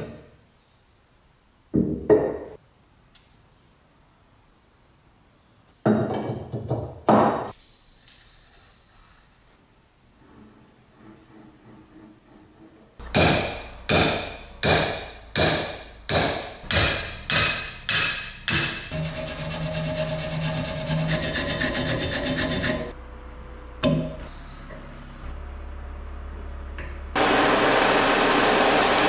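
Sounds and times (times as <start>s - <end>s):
hammer striking cast iron: 13.0s - 19.0s.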